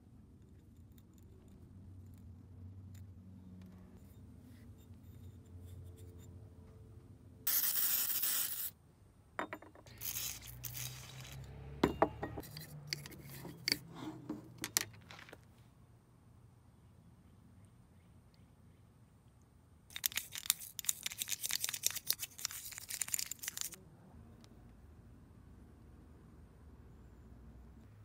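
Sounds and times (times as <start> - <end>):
aerosol spray hissing: 7.5 - 8.7
metal parts scraping and rubbing: 9.7 - 11.5, 12.2 - 15.4, 19.9 - 23.8.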